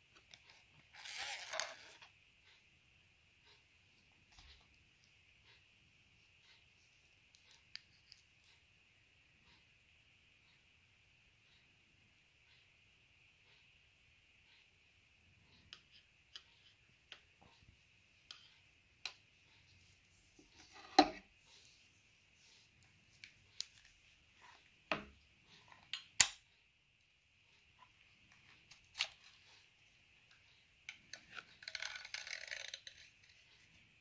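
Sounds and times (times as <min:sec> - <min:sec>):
staple strip scraping rattle: 0:31.2 - 0:33.4.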